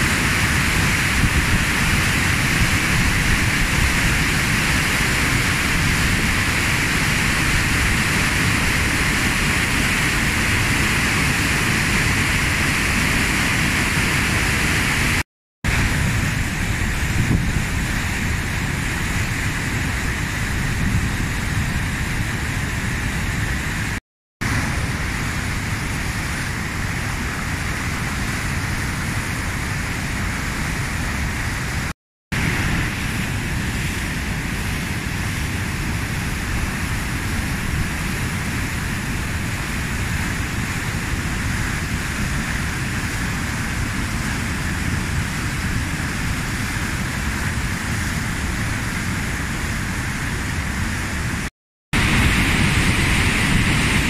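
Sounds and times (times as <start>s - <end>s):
water rushing over weir: 0.0s - 54.0s.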